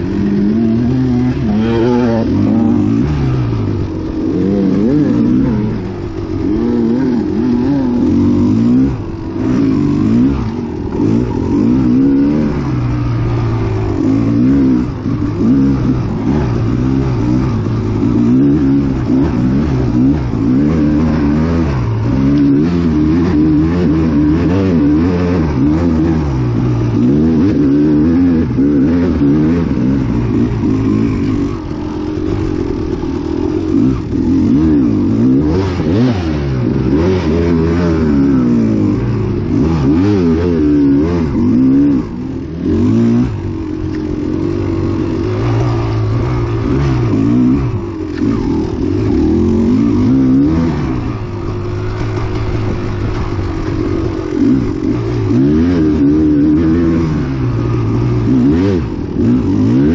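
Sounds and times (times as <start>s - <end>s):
dirt bike engine revving: 0.0s - 59.9s
engine clatter: 0.0s - 59.9s.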